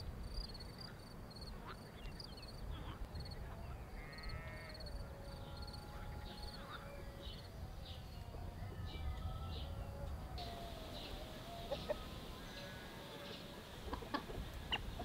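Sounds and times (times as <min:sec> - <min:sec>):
insects chirping trills: 0:00.1 - 0:15.0
low wind rumble: 0:04.8 - 0:15.0
bird calls: 0:05.4 - 0:15.0.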